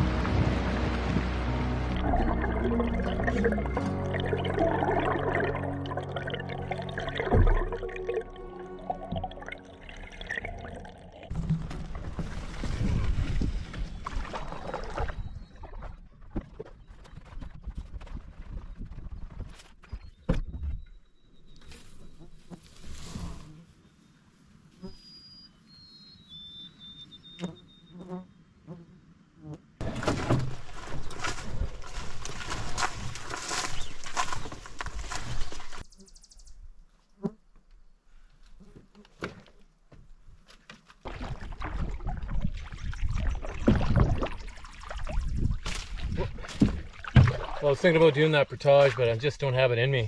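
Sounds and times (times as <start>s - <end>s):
background music: 0.0s - 11.3s
water splashing from paddling: 0.0s - 16.4s, 41.0s - 49.2s
whistled bird notes: 24.9s - 28.0s
footsteps crunching through dry brush: 30.5s - 35.9s.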